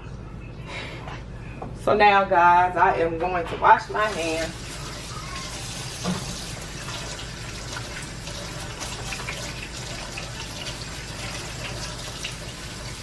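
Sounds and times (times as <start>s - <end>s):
tap running into sink: 5.9s - 7.1s.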